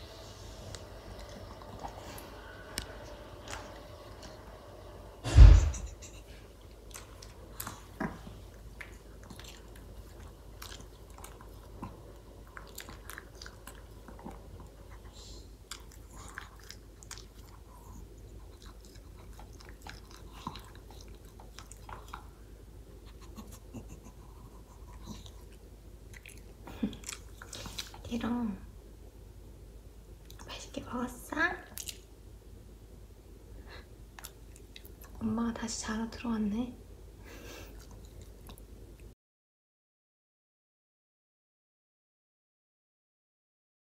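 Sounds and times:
dog crunching food: 6.7s - 15.0s, 15.6s - 22.4s, 24.8s - 28.1s, 31.7s - 32.1s.

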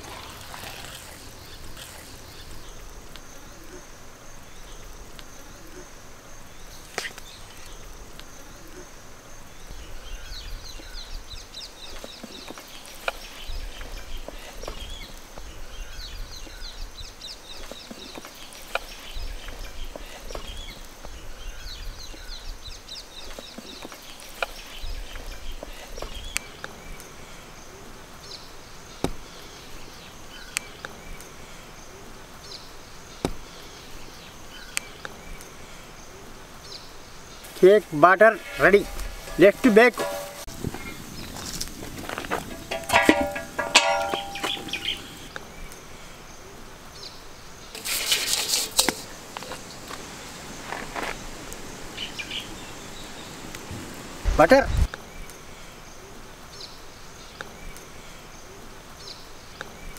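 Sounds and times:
high insect drone: 0.0s - 22.9s
rapid chirping: 42.4s - 45.3s.

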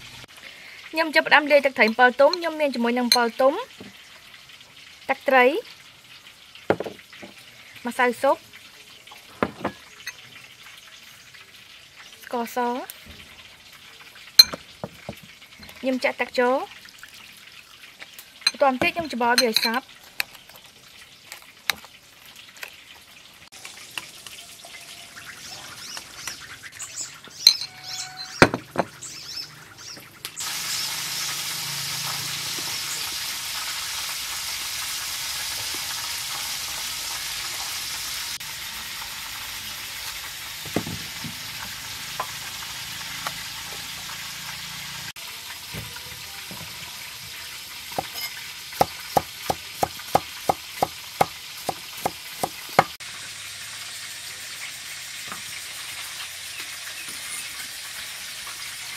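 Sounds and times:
oil sizzling: 0.0s - 58.9s
knife chopping on wooden board: 6.7s - 7.0s, 48.8s - 53.0s
spoon scraping ceramic bowl: 48.0s - 48.4s.

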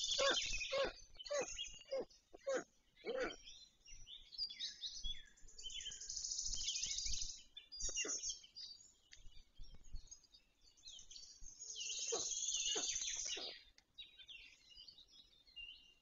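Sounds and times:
stork chicks calling: 0.0s - 3.4s, 12.0s - 13.6s
birds chirping: 0.0s - 16.0s.

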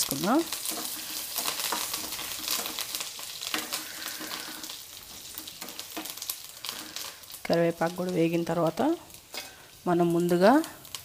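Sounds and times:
food sizzling in hot oil: 0.0s - 11.0s
spatula scraping pan: 0.5s - 7.3s.

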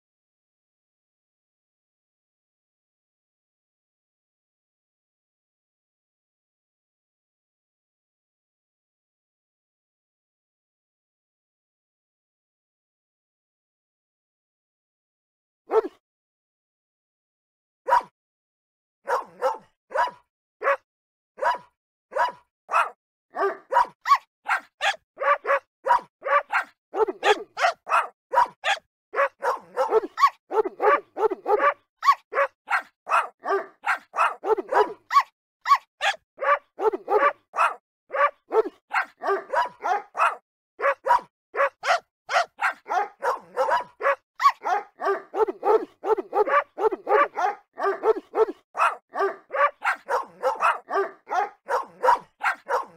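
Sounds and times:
dog barking: 15.7s - 16.0s, 17.9s - 18.1s, 19.0s - 52.9s.

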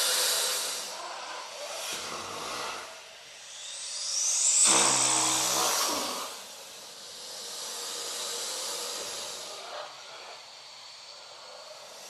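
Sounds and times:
raspy hissing breath: 0.0s - 12.0s
deep creature growl: 4.6s - 6.4s.

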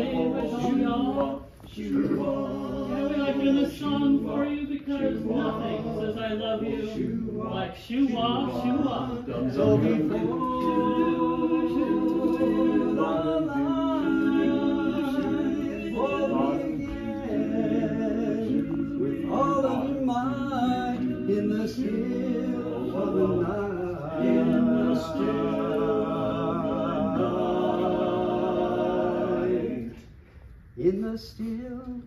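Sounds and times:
quartet singing a cappella: 0.0s - 30.2s.

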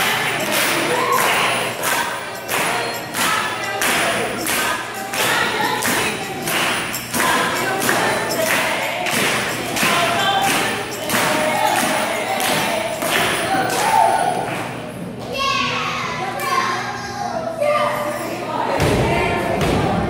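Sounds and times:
group singing: 0.0s - 14.9s, 17.9s - 20.0s.

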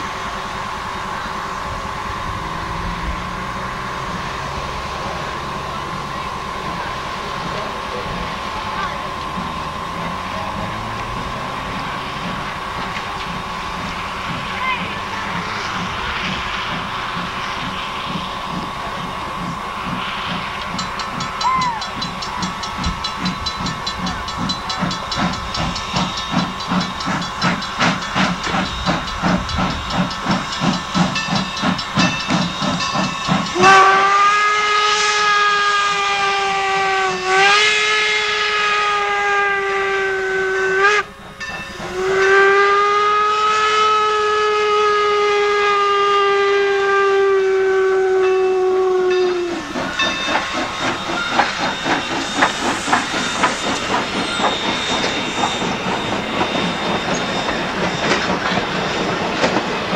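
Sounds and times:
steam locomotive chuffing: 0.0s - 59.9s
steam whistle blast: 33.5s - 41.1s, 41.9s - 49.8s.

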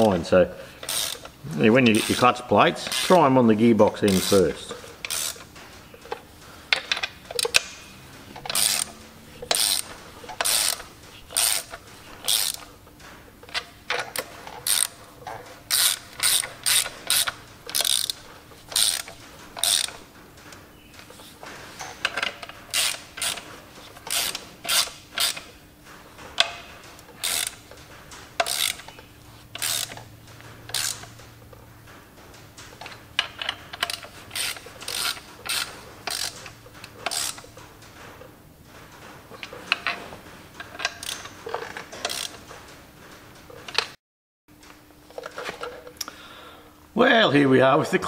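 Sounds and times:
socket ratchet clicking: 0.8s - 3.3s, 4.0s - 5.5s, 6.8s - 12.7s, 13.5s - 15.0s, 15.7s - 20.0s, 22.1s - 23.5s, 24.1s - 25.5s, 26.4s - 27.6s, 28.4s - 30.1s, 30.7s - 31.2s, 32.8s - 37.5s, 40.6s - 42.4s.

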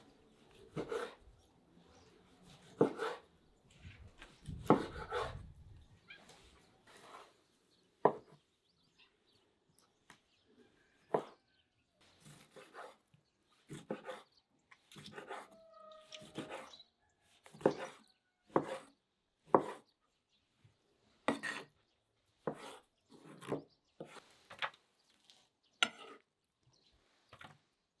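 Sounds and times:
cleaver chopping on wooden board: 2.7s - 3.2s, 4.5s - 5.3s, 8.0s - 8.4s, 11.1s - 11.4s, 17.5s - 18.9s, 19.5s - 19.8s, 22.4s - 24.2s.

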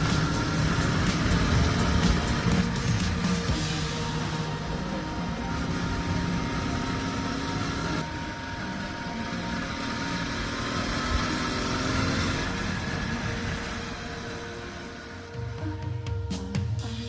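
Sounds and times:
riding wind noise: 0.0s - 15.8s
motorcycle engine cruising: 0.0s - 17.0s.

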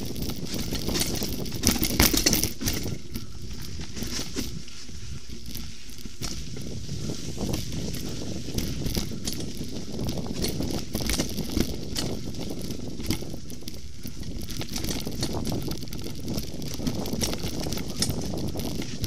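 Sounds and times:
air noise: 0.0s - 19.0s
bike rattling and knocking: 0.0s - 19.0s
bike tyres rumbling on dirt: 0.0s - 19.0s.

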